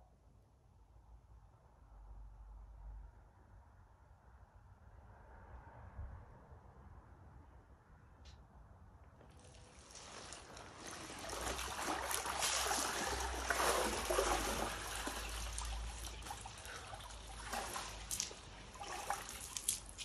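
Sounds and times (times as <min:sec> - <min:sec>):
water streaming and dripping: 0:09.2 - 0:20.0
sharp water splashes: 0:09.4 - 0:20.0.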